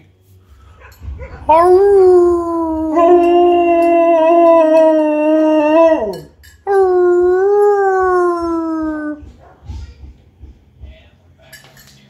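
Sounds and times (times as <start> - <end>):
dog howling: 1.2 - 9.3.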